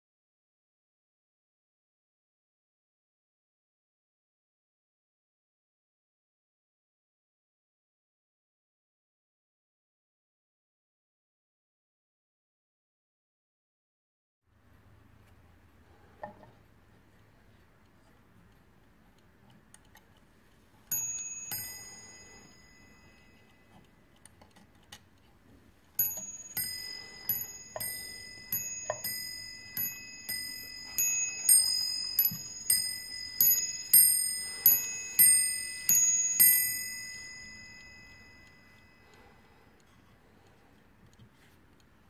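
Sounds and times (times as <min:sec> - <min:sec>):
faint clock ticking: 0:15.2 - 0:42.0
clock striking on a bell: 0:20.9 - 0:23.4, 0:26.0 - 0:39.1.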